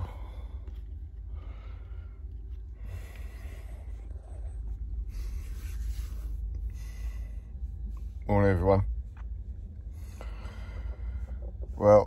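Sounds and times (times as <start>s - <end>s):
man breathing: 0.0s - 8.2s, 9.7s - 11.8s
steady low rumble: 0.0s - 12.0s.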